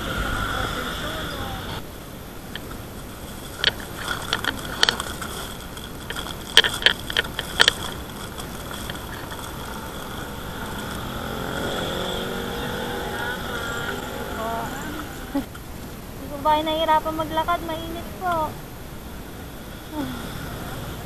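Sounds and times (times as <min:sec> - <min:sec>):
steady hum: 0:00.0 - 0:21.0
plastic bag crinkling: 0:02.5 - 0:12.0.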